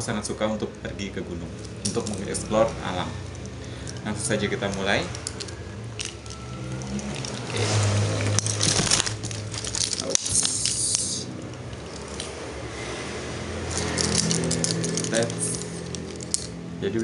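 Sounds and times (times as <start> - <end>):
leather bag rustling and scraping: 5.3 - 11.2, 13.7 - 16.5.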